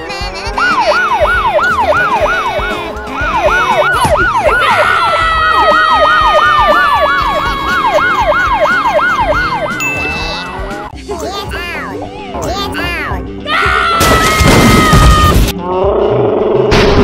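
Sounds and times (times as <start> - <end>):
long falling siren tone: 0.6 - 9.8
police siren yelping: 0.6 - 10.9.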